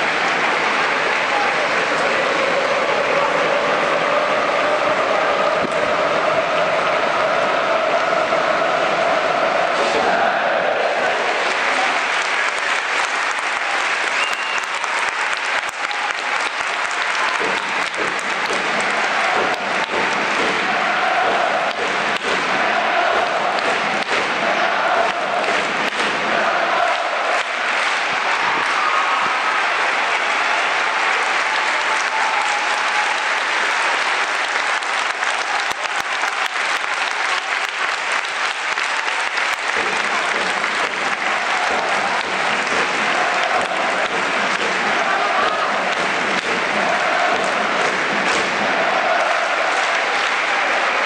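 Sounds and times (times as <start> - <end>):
crowd applauding: 0.0 - 51.0
sharp individual claps: 11.0 - 51.0.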